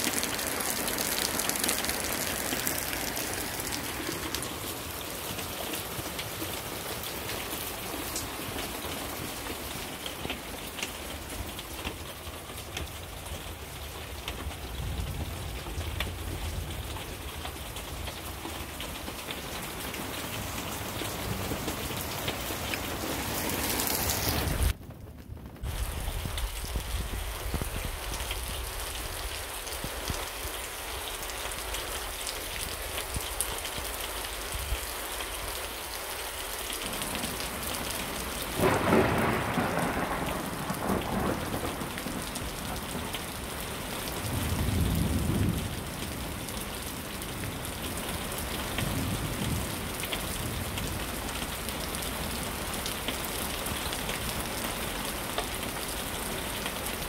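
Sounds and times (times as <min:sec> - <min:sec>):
thunder rumbling: 0:00.0 - 0:07.1, 0:13.3 - 0:31.0, 0:36.8 - 0:47.6
steady rain: 0:00.0 - 0:57.0
thunder crack: 0:38.6 - 0:43.2.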